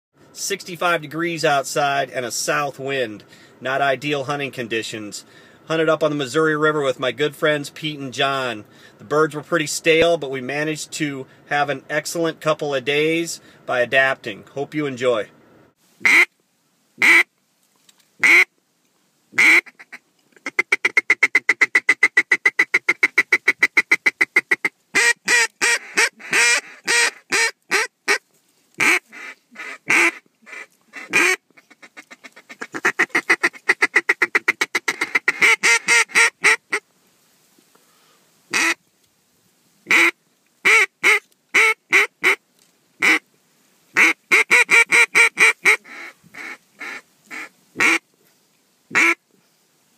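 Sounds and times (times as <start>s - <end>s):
duck call quacking: 16.0s - 16.3s, 17.0s - 17.3s, 18.2s - 18.5s, 19.4s - 28.2s, 28.8s - 36.8s, 38.5s - 38.8s, 39.9s - 42.4s, 43.0s - 43.2s, 44.0s - 48.0s, 48.9s - 49.2s.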